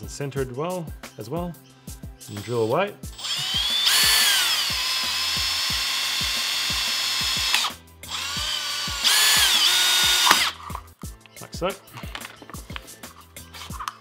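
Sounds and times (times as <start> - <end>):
cordless drill with hole saw: 2.3 - 10.7.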